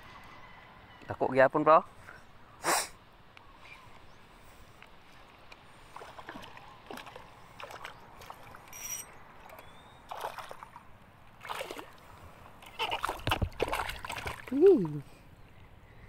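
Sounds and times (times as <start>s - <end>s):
fish splashing in water: 5.8s - 8.7s, 9.4s - 15.0s.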